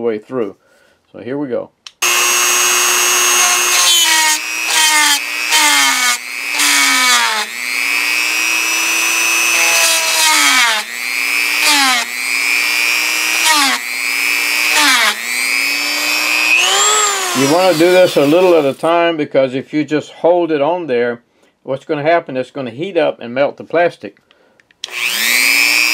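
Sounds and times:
rotary tool grinding metal: 2.0 - 18.9, 24.8 - 25.9.

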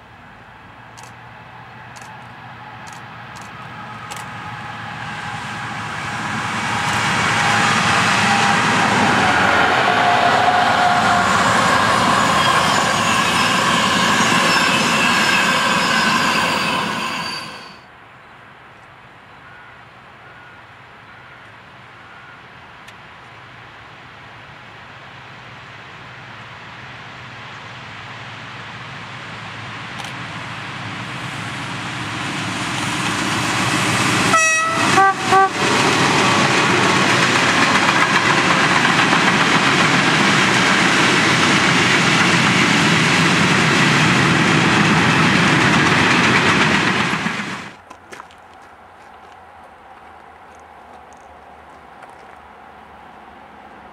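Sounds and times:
freight train rumbling: 0.0 - 17.9, 23.5 - 53.9
train horn blast: 6.6 - 11.6, 34.2 - 35.7.

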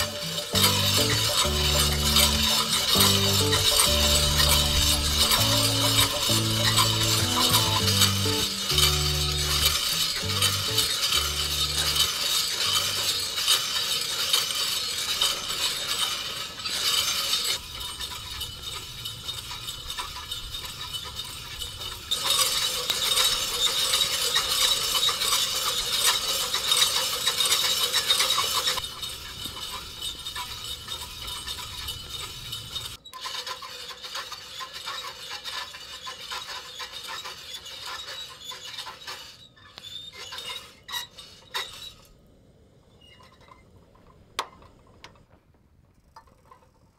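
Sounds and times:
coffee beans rattling in drum: 0.0 - 37.3.

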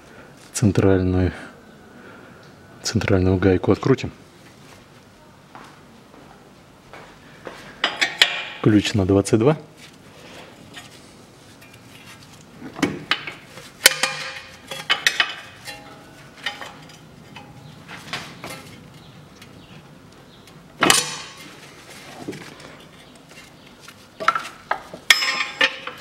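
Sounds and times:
spanner clinking on metal: 13.1 - 17.7, 25.1 - 26.0.

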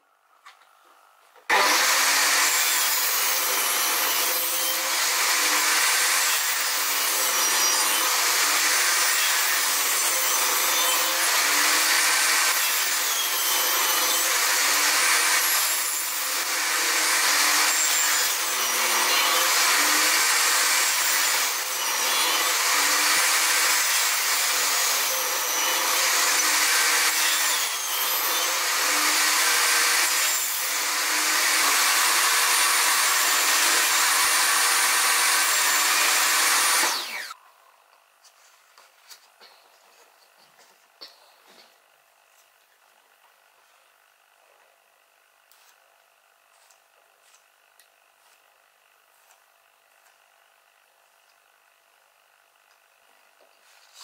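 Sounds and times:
table saw cutting wood: 1.5 - 37.4.

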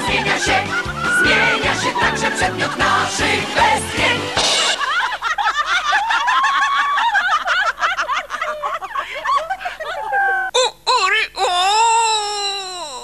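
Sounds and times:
people laughing and whooping: 0.0 - 2.7, 4.7 - 10.5.

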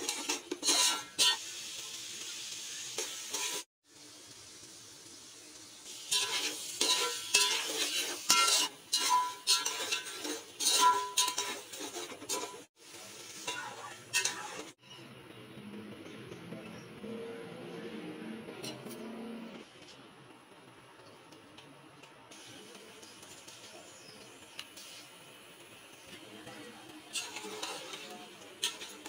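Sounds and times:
utensils scraping and clinking pot: 0.0 - 1.5, 3.0 - 3.7, 6.0 - 12.7, 13.4 - 15.0, 18.5 - 19.3, 26.0 - 29.0
beef sizzling in a pot: 0.0 - 14.8, 22.3 - 29.0.

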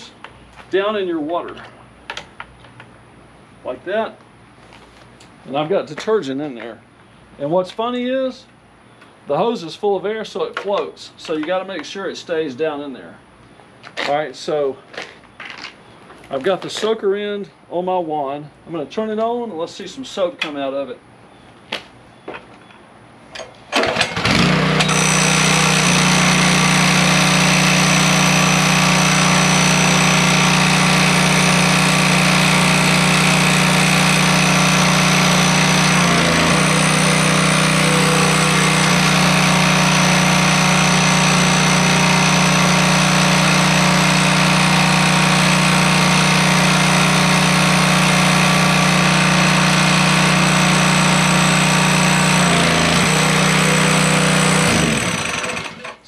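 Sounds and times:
pressure washer engine drone: 23.8 - 56.0.

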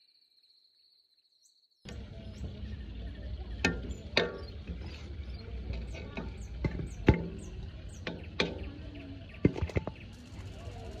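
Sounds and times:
low steady rumble: 1.9 - 11.0
metal skimmer scraping a pot: 3.5 - 8.8.

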